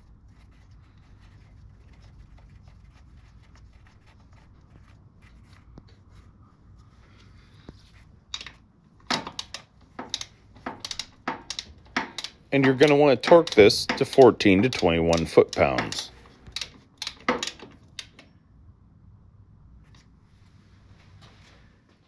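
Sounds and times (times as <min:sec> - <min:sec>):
socket ratchet clicking: 0:09.1 - 0:18.3.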